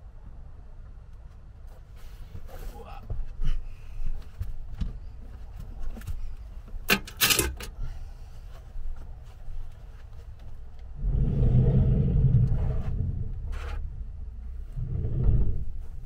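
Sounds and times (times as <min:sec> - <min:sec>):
scraping rustle: 0:01.7 - 0:04.7
low rumble: 0:10.6 - 0:16.0.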